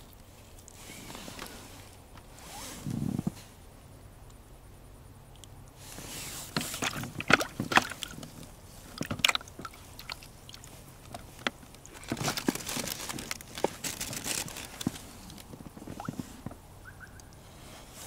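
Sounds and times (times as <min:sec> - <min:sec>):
clothing rustling: 0:10.7 - 0:16.6.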